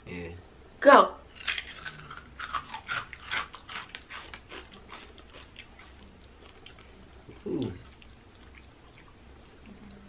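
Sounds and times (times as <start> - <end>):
crunching crisp snacks: 1.3 - 9.1.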